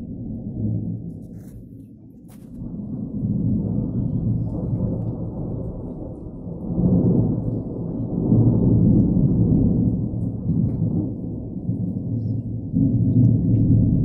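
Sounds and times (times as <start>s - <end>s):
thunder rumbling: 0.0s - 14.0s.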